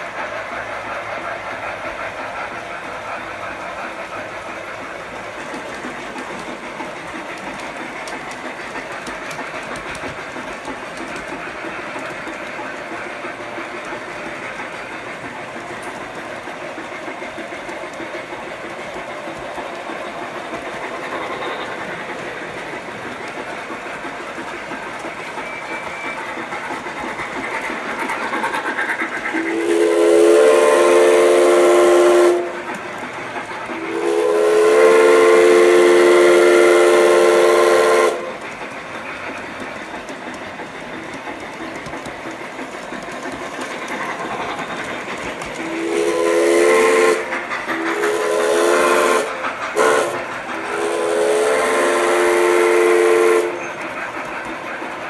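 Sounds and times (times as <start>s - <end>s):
model train rolling on track: 0.0s - 55.0s
faint clicking: 3.4s - 25.4s, 38.3s - 45.7s
steam whistle: 29.4s - 32.7s, 33.8s - 38.4s, 45.7s - 53.8s.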